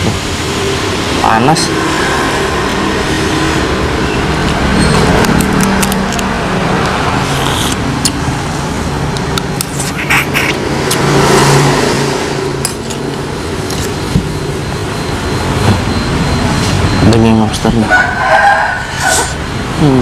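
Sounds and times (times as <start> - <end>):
vehicle engine noise: 0.0 - 20.0.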